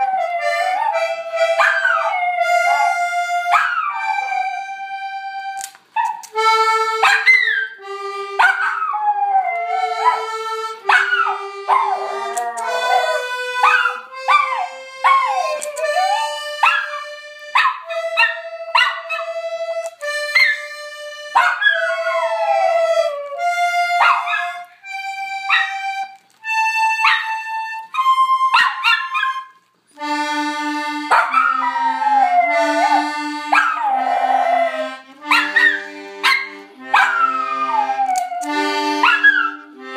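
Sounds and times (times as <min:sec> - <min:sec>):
accordion playing slow tune: 0:00.0 - 0:07.1, 0:07.8 - 0:08.4, 0:09.5 - 0:28.5, 0:29.5 - 0:39.9
small dog howling: 0:01.6 - 0:04.5, 0:08.6 - 0:10.3, 0:10.9 - 0:16.9, 0:31.2 - 0:35.7, 0:37.0 - 0:39.6.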